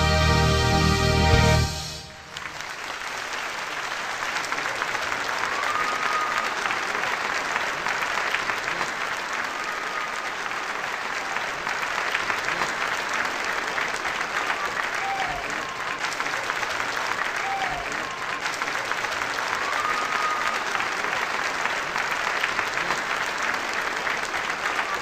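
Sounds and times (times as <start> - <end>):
crowd applauding: 0.0 - 25.0.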